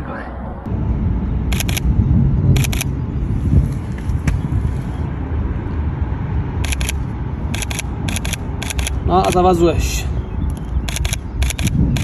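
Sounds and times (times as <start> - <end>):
low rumble: 0.0 - 9.1
camera shutter double click: 7.6 - 9.4, 10.8 - 12.0.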